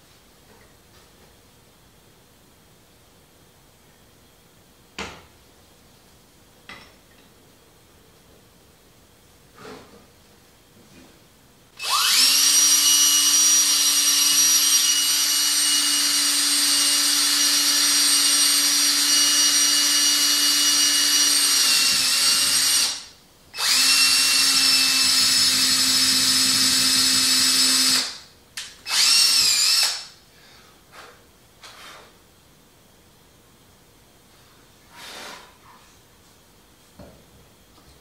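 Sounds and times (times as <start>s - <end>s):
cordless drill whining: 11.8s - 28.2s, 28.9s - 30.1s.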